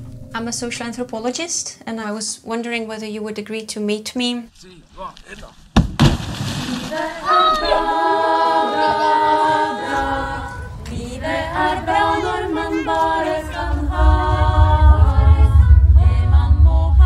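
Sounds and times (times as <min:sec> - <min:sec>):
choir singing: 0:07.0 - 0:17.0
low rumble: 0:10.2 - 0:17.0.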